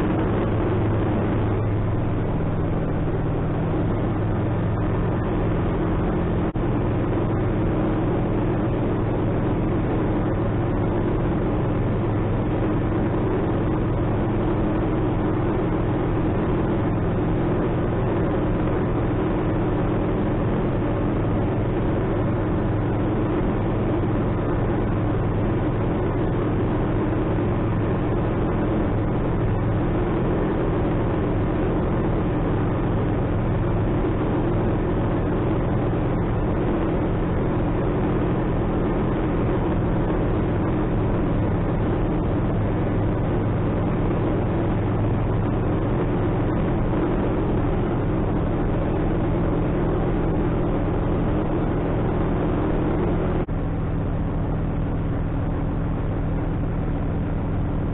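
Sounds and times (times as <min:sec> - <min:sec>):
aircraft engine and propeller drone: 0:00.0 - 0:57.9.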